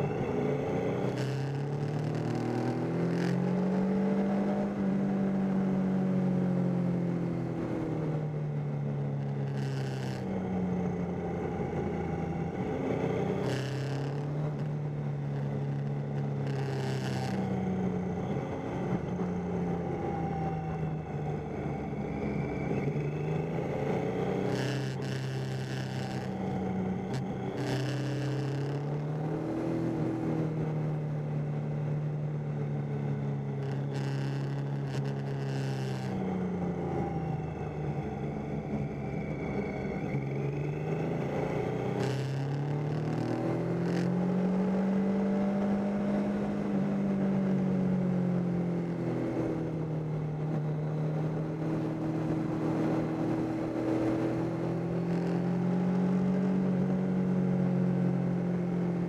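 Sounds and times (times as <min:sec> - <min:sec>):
motorcycle engine running: 0:00.0 - 0:21.3, 0:22.6 - 0:36.9.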